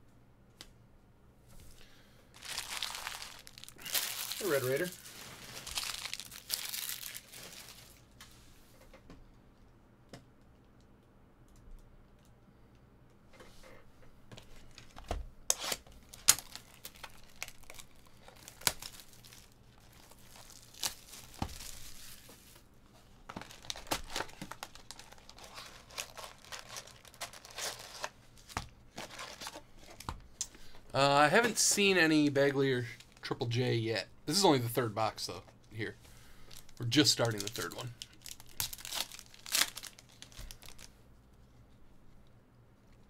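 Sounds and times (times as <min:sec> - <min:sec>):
card wrappers tearing and crinkling: 0:02.4 - 0:08.0, 0:15.5 - 0:22.3, 0:23.2 - 0:30.0, 0:36.5 - 0:41.0.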